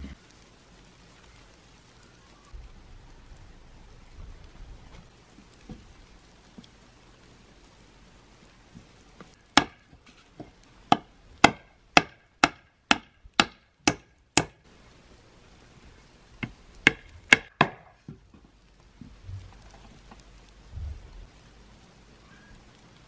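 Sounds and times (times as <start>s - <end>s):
axe chopping wood: 9.5s - 14.6s, 16.4s - 18.2s.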